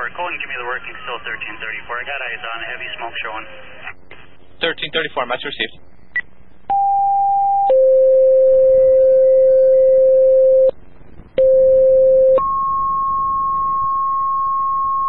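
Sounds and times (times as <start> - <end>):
two-tone radio paging tones: 11.4 - 15.0.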